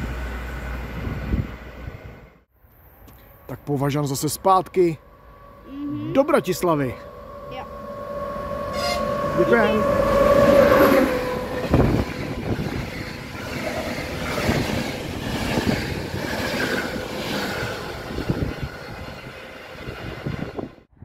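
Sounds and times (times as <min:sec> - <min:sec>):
passenger train passing: 0:00.0 - 0:21.0
train horn: 0:05.1 - 0:12.6.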